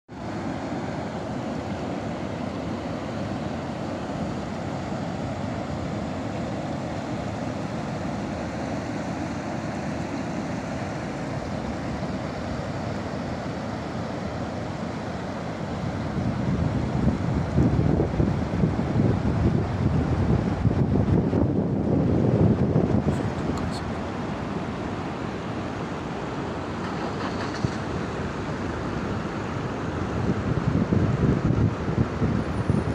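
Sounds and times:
floodwater rushing: 0.1 - 20.2
wind buffeting microphone: 15.8 - 23.8, 29.1 - 32.9.

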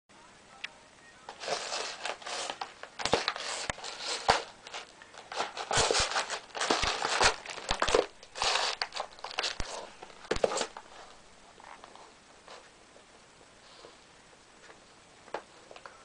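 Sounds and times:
cardboard scraping and crackling: 1.3 - 12.6.

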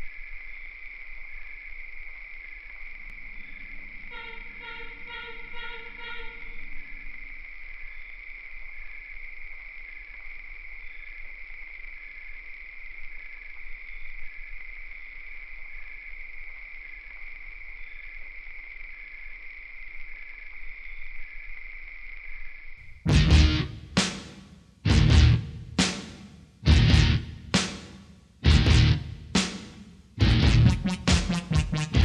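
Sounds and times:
insects trilling: 0.0 - 23.0
insect chirps: 0.0 - 23.1.

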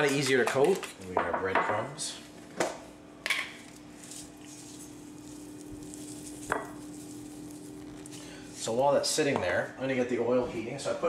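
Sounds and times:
breadcrumbs pouring into bowl: 4.0 - 8.9.

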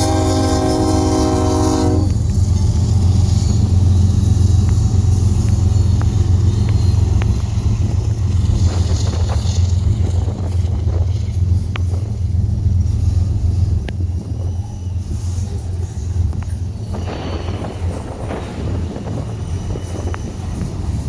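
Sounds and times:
locomotive horn: 0.0 - 2.2
train passing rumble: 0.0 - 21.0
wheels clicking and squeaking on rails: 0.0 - 21.0.

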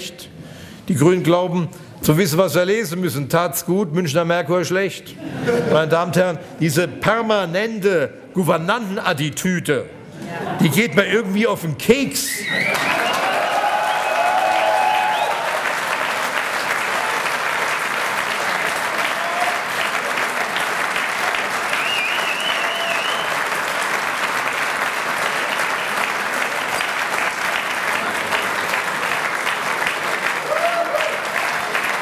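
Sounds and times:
audience applause: 12.5 - 32.0.

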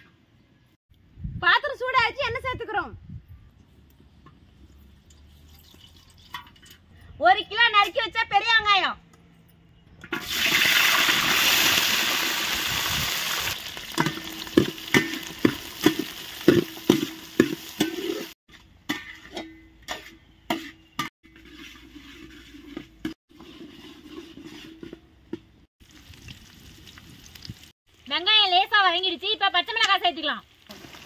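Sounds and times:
onions sizzling in hot oil: 10.2 - 18.4, 30.5 - 31.0
utensil scraping pan: 14.0 - 25.2.

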